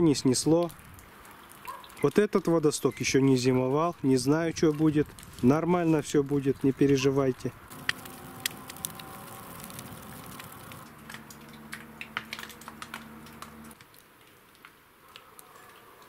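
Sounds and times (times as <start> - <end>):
wood fire crackling and popping: 4.1 - 6.7, 7.7 - 15.4
faint steady hum: 7.7 - 13.8.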